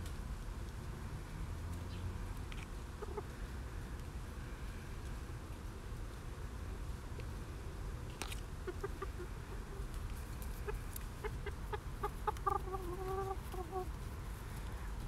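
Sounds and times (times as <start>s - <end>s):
chicken clucking: 2.9s - 3.4s, 8.6s - 15.0s.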